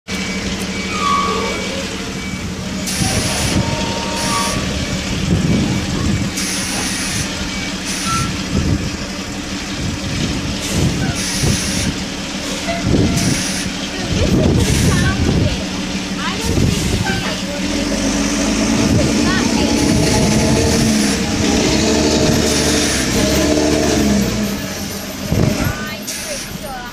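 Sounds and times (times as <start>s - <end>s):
diesel engine running: 0.0s - 26.9s
reversing alarm: 0.1s - 8.8s, 10.7s - 13.8s.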